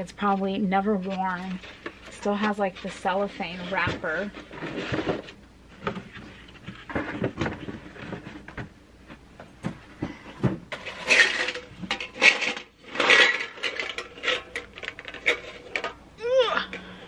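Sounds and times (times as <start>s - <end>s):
metal lid scraping: 10.7s - 16.0s.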